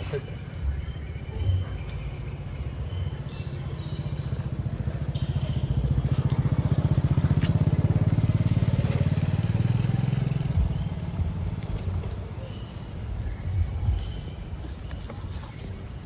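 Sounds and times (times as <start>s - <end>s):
vehicle engine passing by: 2.0s - 14.4s.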